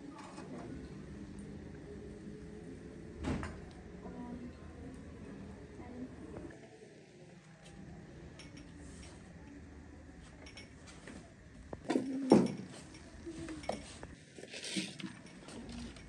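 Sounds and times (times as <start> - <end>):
tableware clinking: 8.3 - 9.2, 10.4 - 11.1, 11.8 - 15.8
loud clatter of dishes: 11.8 - 13.0.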